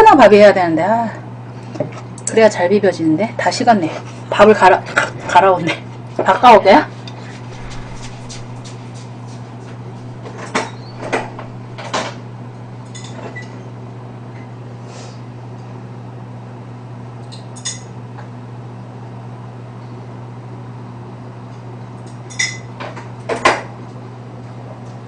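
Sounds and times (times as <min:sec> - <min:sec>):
low hum: 0:07.0 - 0:13.0.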